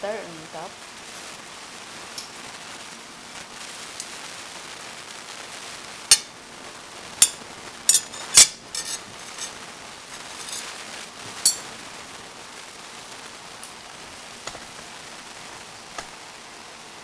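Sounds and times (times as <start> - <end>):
background hiss: 0.0 - 17.0
knife clinking on ceramic plate: 7.2 - 9.6, 10.4 - 10.7, 11.5 - 11.7.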